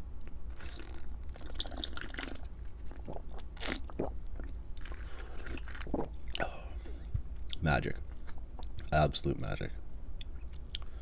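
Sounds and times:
person gulping and swallowing: 0:00.6 - 0:06.7.

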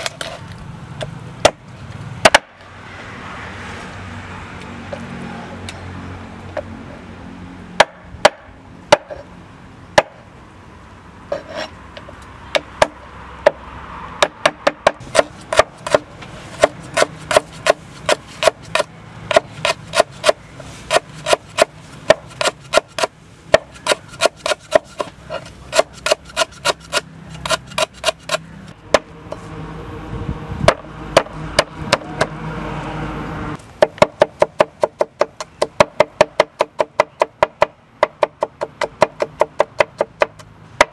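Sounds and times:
knife chopping on wooden board: 0:14.2 - 0:29.1.

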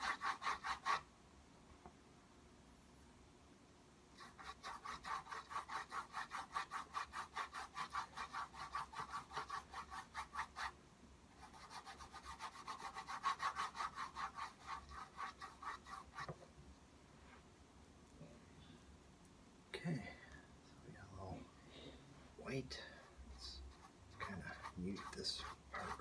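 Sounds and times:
paintbrush scrubbing on canvas: 0:00.0 - 0:01.1, 0:04.2 - 0:10.8, 0:11.4 - 0:16.4, 0:22.4 - 0:26.0.

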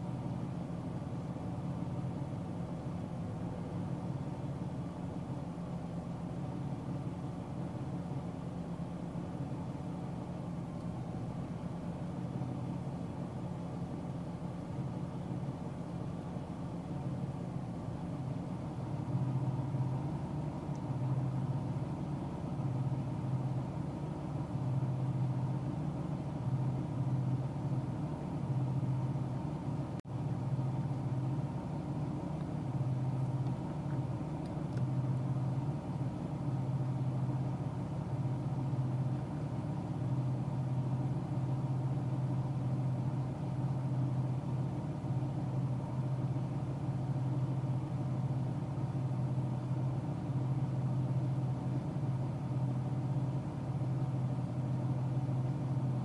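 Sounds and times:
car engine hum: 0:00.0 - 0:56.0
road noise: 0:10.2 - 0:44.0.

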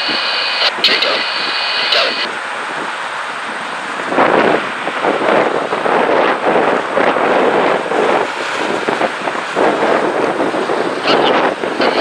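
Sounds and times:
highway traffic passing: 0:00.0 - 0:12.0
wind on microphone: 0:00.0 - 0:12.0.

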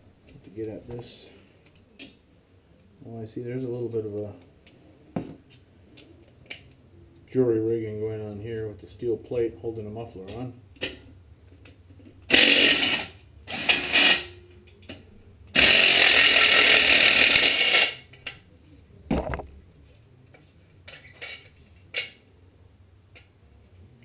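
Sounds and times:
cordless power driver spinning: 0:15.6 - 0:18.0.

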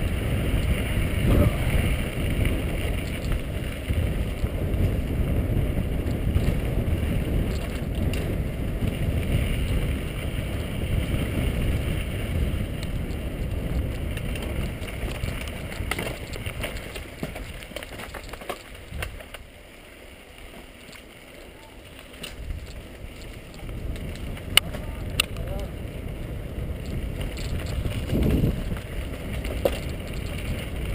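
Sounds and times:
wind buffeting microphone: 0:00.0 - 0:19.4, 0:22.2 - 0:30.9
bike clicks and rattles: 0:00.0 - 0:30.9
bike tyres on dirt trail: 0:00.0 - 0:30.9.

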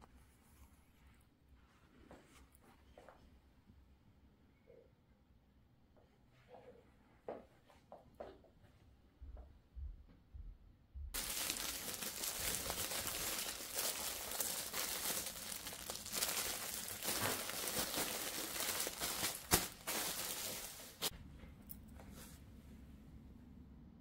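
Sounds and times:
packaging crinkling: 0:11.2 - 0:21.1.

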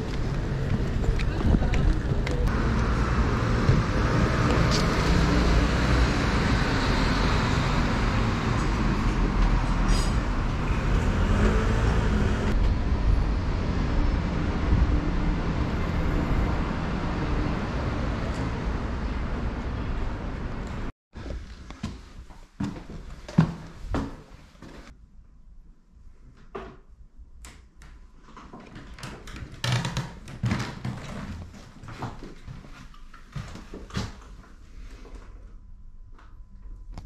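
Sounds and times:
rumble of cars on busy road: 0:00.0 - 0:20.9.

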